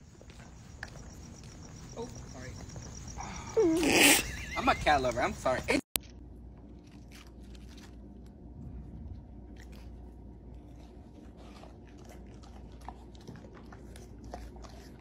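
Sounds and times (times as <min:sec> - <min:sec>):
low hum: 0:04.2 - 0:15.0
lettuce leaves crunching: 0:06.0 - 0:08.4.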